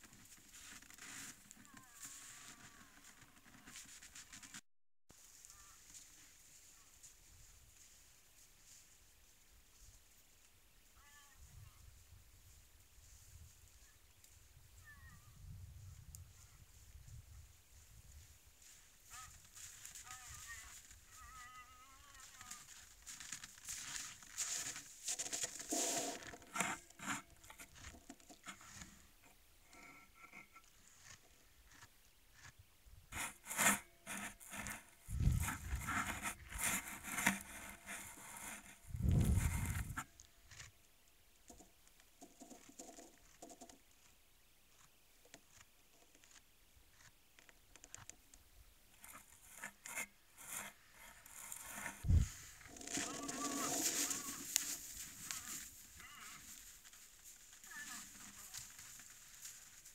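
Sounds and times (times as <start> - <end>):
moose moving in snow: 0.0 - 4.6, 17.7 - 29.1, 33.1 - 40.7, 49.0 - 59.9
rustling and scraping: 0.0 - 8.0, 22.1 - 40.8, 41.5 - 44.1, 48.9 - 59.9.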